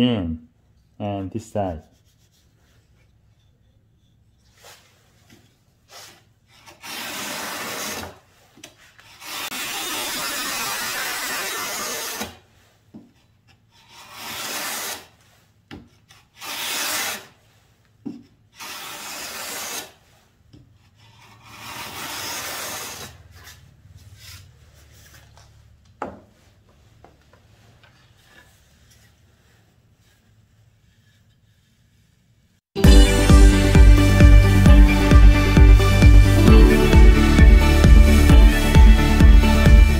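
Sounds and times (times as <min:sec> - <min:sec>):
planer shaving gypsum board: 0:06.0 - 0:08.2, 0:09.1 - 0:12.4.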